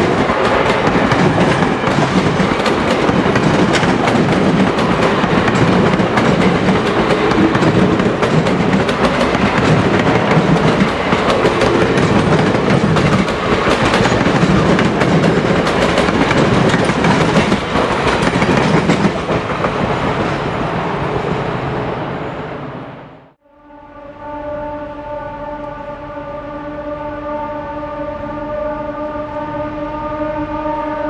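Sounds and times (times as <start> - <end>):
train rumbling: 0.0 - 23.4.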